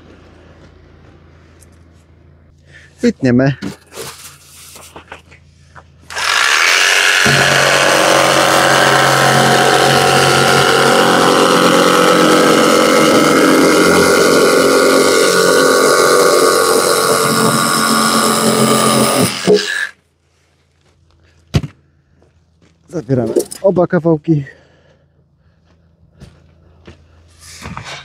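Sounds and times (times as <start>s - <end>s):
jigsaw cutting foam board: 6.1s - 19.9s.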